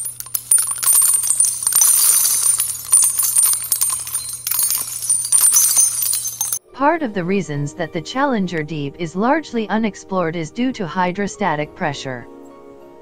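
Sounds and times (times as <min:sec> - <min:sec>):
jingling metallic clinks: 0:00.0 - 0:06.6.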